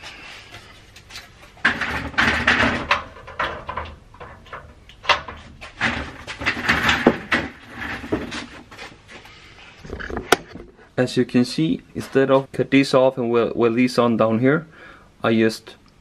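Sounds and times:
metal scraping and clunking: 0.0 - 10.8.

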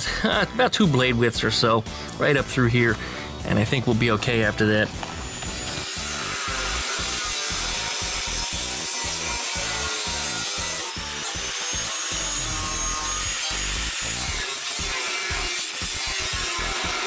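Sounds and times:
angle grinder cutting steel: 2.9 - 17.0
thin high whine: 4.5 - 8.6.

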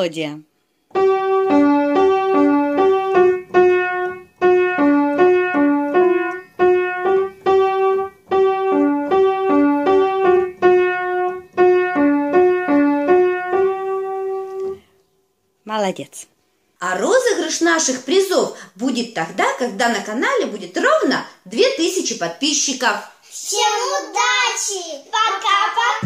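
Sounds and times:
piano melody: 0.9 - 14.9.

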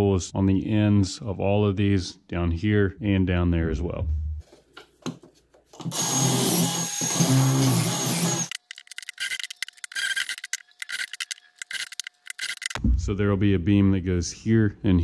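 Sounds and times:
cordless drill boring: 5.8 - 12.7
rapid scratchy clicking: 8.5 - 12.8.

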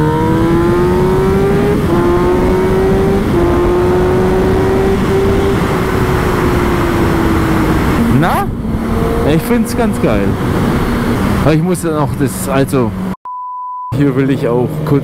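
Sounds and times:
motorcycle engine revving through gears: 0.0 - 11.5.

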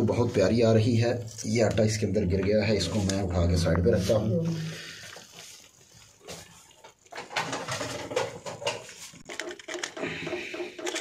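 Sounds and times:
dough pieces clicking and scraping: 6.9 - 11.0.

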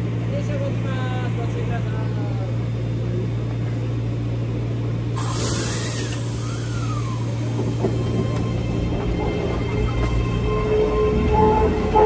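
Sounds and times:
electric train humming: 0.0 - 12.0
air brake hiss: 5.2 - 7.6.

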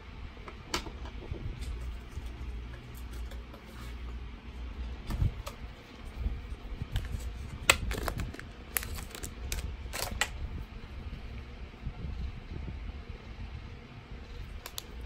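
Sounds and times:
low steady hum: 0.0 - 15.0
plastic pens clicking together: 14.6 - 15.0.

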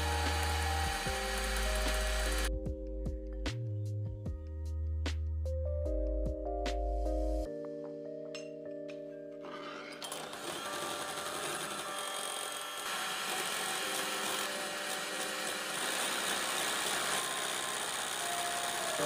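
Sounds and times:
electric hand mixer whirring: 0.0 - 2.5, 9.5 - 19.0.

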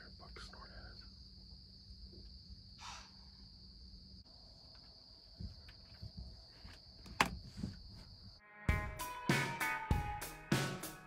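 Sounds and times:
crickets chirring: 0.0 - 8.4
short breathy burst: 2.8 - 3.3.

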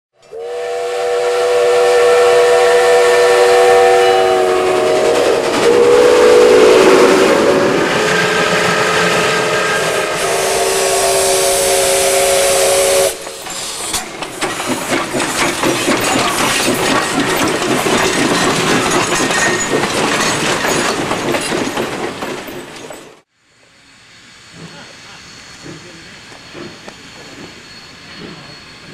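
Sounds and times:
steam locomotive whistle: 0.2 - 14.1
steam locomotive chuffing: 0.2 - 28.9
steam hissing: 0.3 - 19.8, 23.4 - 28.9.

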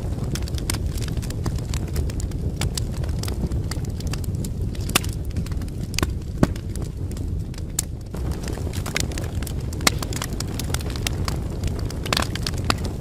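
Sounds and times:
wood fire crackling: 0.0 - 13.0.

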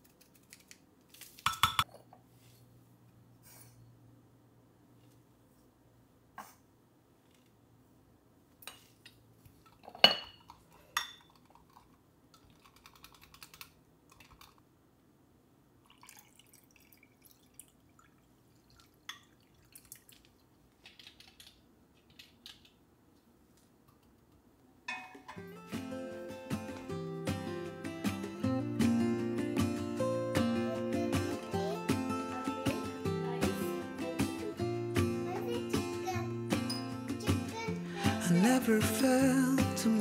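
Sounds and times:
tableware clinking: 9.8 - 11.3, 24.9 - 25.5.

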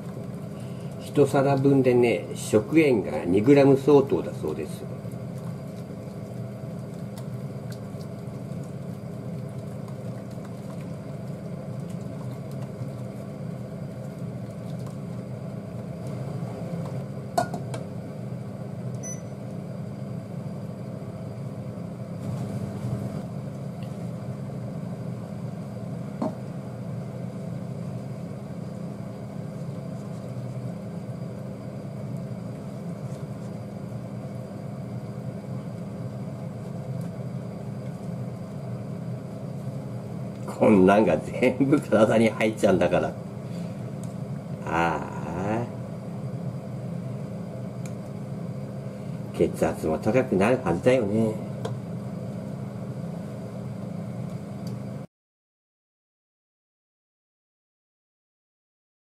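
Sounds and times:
induction cooktop hum: 0.0 - 55.1
curry simmering: 4.8 - 17.3.

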